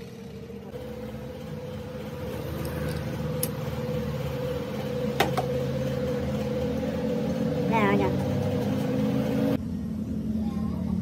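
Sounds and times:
engine humming steadily: 0.0s - 11.0s.

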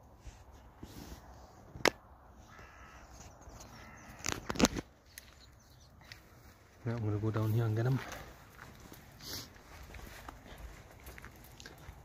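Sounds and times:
crow cawing: 2.3s - 4.8s.

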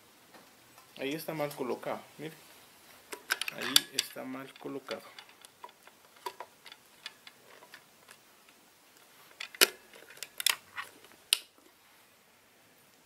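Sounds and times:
plastic tubing clicks and rattles: 3.1s - 8.2s.

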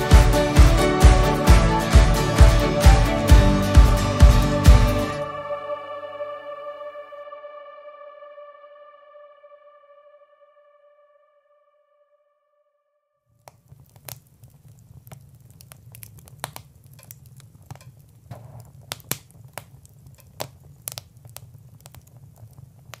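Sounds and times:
crackles and pops: 13.3s - 23.0s.

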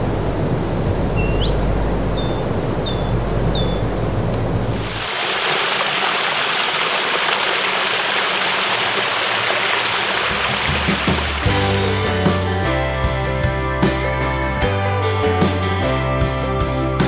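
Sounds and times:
creek water splashing over rocks: 4.8s - 11.7s.

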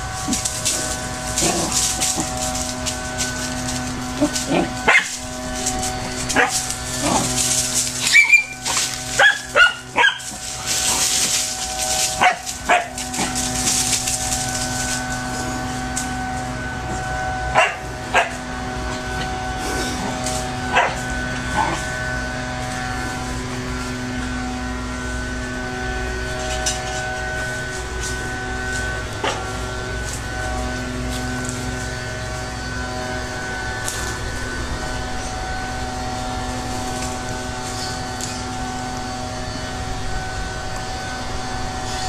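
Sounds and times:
steady hum: 0.0s - 42.0s
small dog barking: 4.3s - 5.2s, 6.3s - 7.3s, 8.0s - 10.4s, 12.2s - 13.3s, 17.5s - 18.4s, 20.7s - 21.0s.

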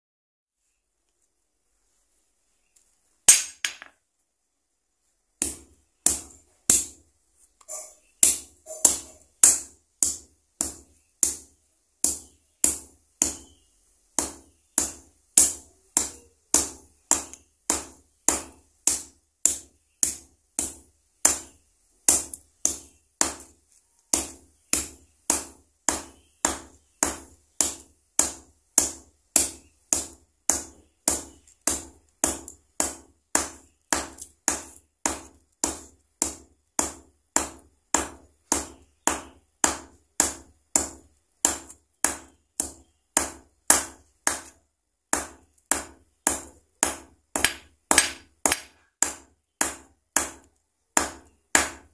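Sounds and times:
hammer pounding on anvil: 45.2s - 50.4s.

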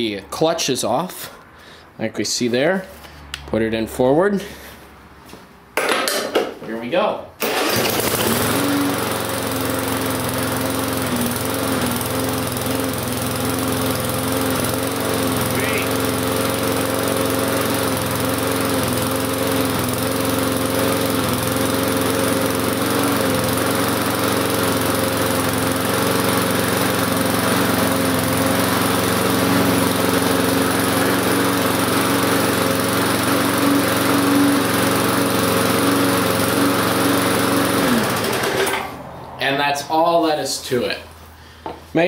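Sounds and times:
lawn mower engine running: 7.4s - 39.2s.

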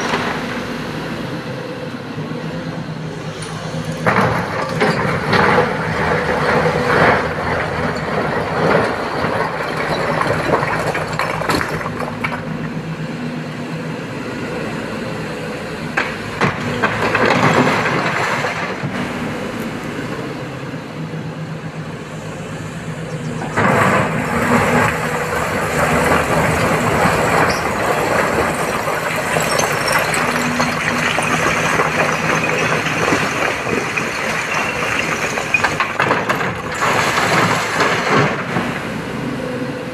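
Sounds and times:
excavator diesel engine revving: 0.0s - 39.9s
rock scraping and clattering: 4.0s - 12.4s, 23.4s - 38.6s.

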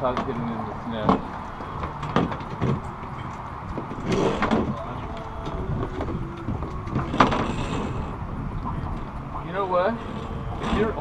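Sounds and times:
muffled voices: 0.0s - 11.0s
steady low rumble: 0.0s - 11.0s.

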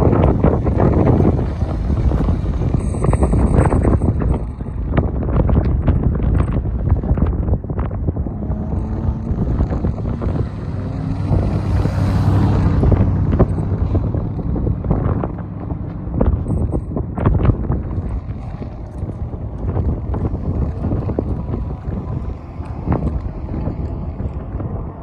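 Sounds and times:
wind buffeting microphone: 0.0s - 25.0s
faint car engine driving away: 6.3s - 25.0s.

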